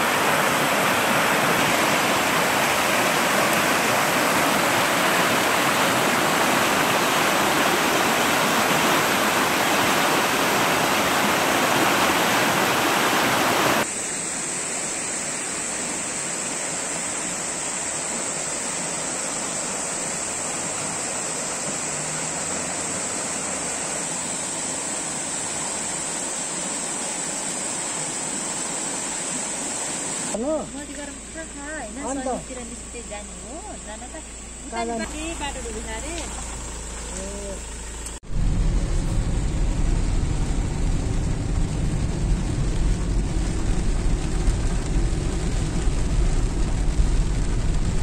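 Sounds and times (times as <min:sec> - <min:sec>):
floodwater rushing: 0:00.0 - 0:48.0.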